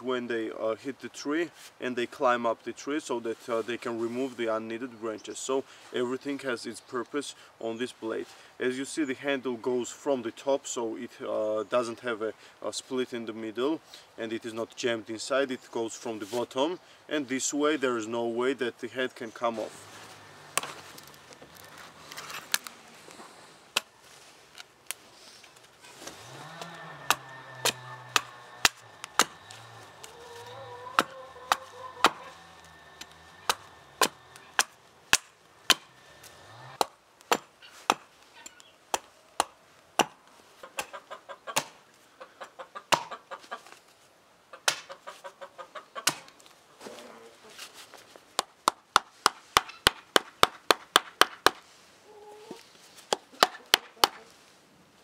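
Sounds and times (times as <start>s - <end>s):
chicken clucking: 26.6s - 34.5s, 44.9s - 46.0s
knife chopping into wood: 27.1s - 29.4s, 31.0s - 32.2s, 33.5s - 35.9s, 36.8s - 38.1s, 41.6s - 41.8s, 46.0s - 46.3s
baton striking knife spine: 27.1s - 30.2s, 33.0s - 35.9s.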